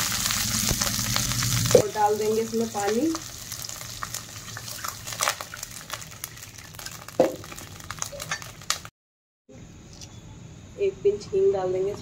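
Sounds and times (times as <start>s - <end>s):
oil crackling and sizzling: 0.0s - 8.9s.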